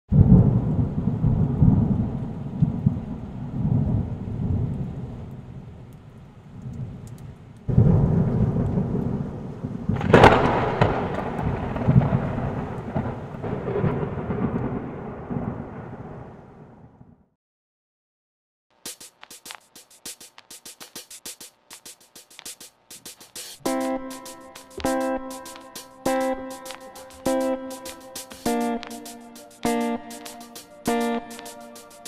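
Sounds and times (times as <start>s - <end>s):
sharp thunder crack: 0.1s - 4.7s, 7.7s - 17.2s, 23.6s - 31.9s
thunder rumbling: 0.1s - 5.9s, 7.7s - 17.3s.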